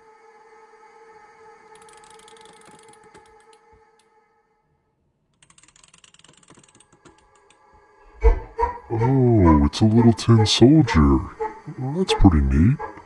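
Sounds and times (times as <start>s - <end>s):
clockwork toy clicking: 1.7s - 3.7s, 5.3s - 7.6s.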